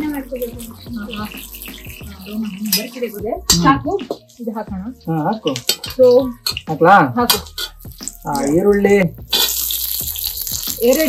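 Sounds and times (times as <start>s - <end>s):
people talking: 0.0s - 7.4s, 8.3s - 9.2s, 10.8s - 11.0s
onions sizzling in hot oil: 0.0s - 11.0s.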